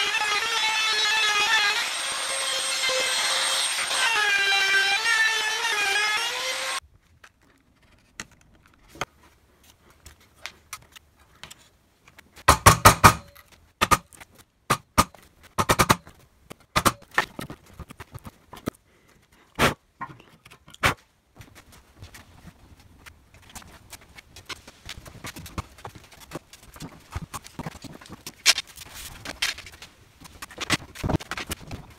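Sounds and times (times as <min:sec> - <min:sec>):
router motor whining: 0:00.0 - 0:06.8.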